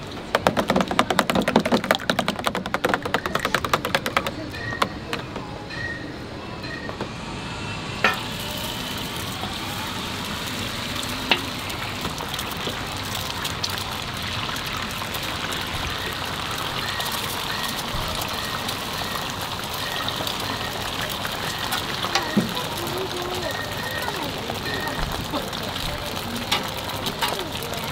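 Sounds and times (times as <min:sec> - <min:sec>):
egg sizzling on a griddle: 0:08.1 - 0:27.9.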